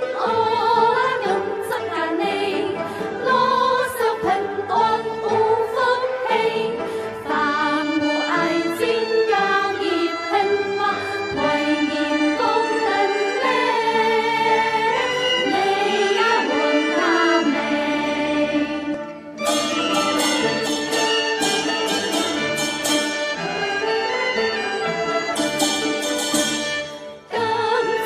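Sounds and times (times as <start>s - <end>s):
women singing folk tune: 0.0s - 19.2s, 27.3s - 28.0s
folk orchestra playing: 0.0s - 28.0s.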